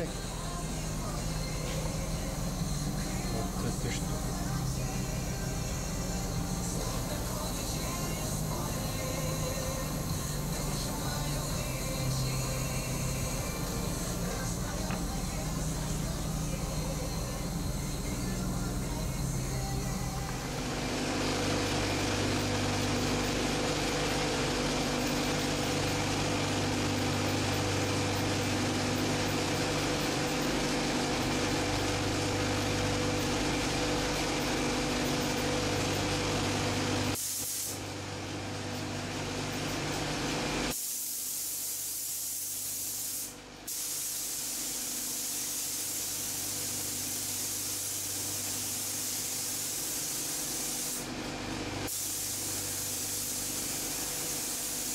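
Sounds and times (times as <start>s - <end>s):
low hum: 0.0s - 24.2s
spray gun hissing: 37.2s - 37.8s, 40.7s - 51.1s, 51.9s - 54.9s.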